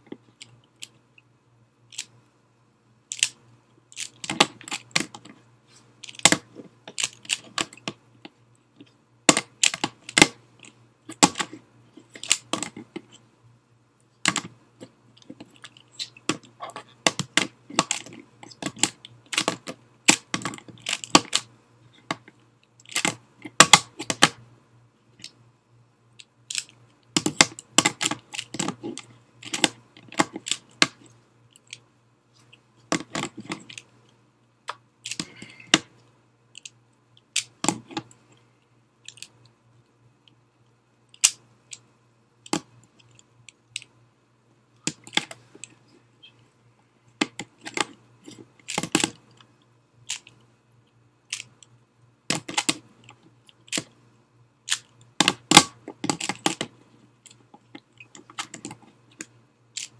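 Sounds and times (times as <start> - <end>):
puzzle cube clicking and clacking: 3.1 - 5.4, 6.0 - 8.0, 9.3 - 13.2, 14.2 - 14.6, 15.2 - 24.4, 26.2 - 31.9, 34.7 - 38.2, 41.1 - 41.8, 42.5 - 44.0, 44.8 - 45.8, 47.2 - 49.5, 50.1 - 50.4, 51.3 - 51.7, 52.3 - 54.0, 54.7 - 59.9.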